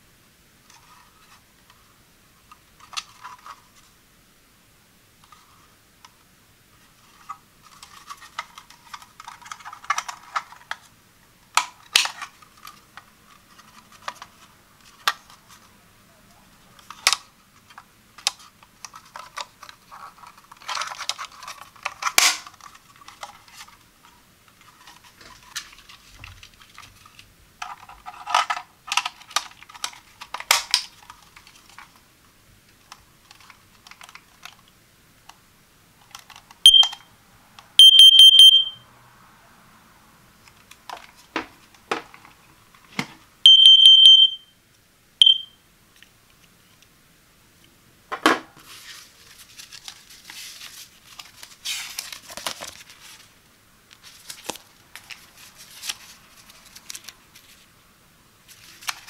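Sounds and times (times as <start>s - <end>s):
alarm beeps: 36.7s - 37.0s, 37.8s - 38.8s, 43.5s - 44.5s, 45.2s - 45.6s.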